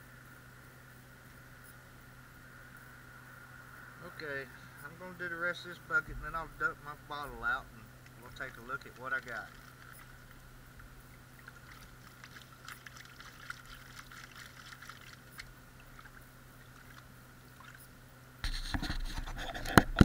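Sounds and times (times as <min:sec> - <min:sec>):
water splashing: 0:06.0 - 0:18.0
water sloshing in a pan: 0:08.0 - 0:18.0.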